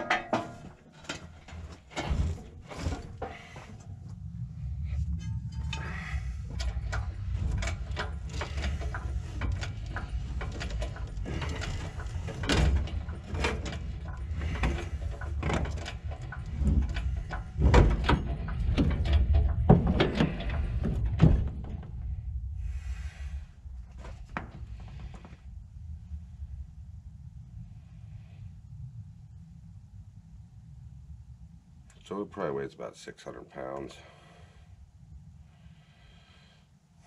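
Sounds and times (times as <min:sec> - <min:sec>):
metallic clicks and clanks: 0:00.0 - 0:03.9, 0:05.0 - 0:22.0
low rumble: 0:00.0 - 0:32.6, 0:34.0 - 0:37.0.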